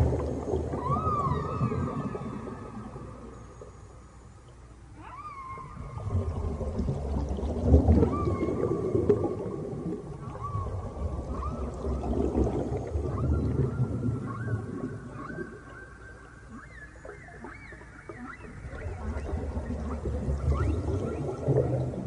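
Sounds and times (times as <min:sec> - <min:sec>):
whale-like tonal calls: 0:00.0 - 0:22.0.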